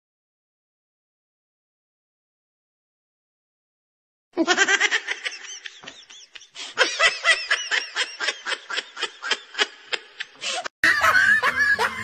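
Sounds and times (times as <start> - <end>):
high-pitched cackling laughter: 4.4 - 12.0.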